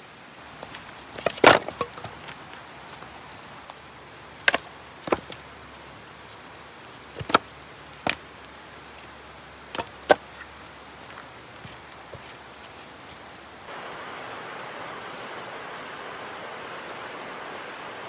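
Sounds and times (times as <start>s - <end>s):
firewood pieces knocking: 0.4s - 12.9s.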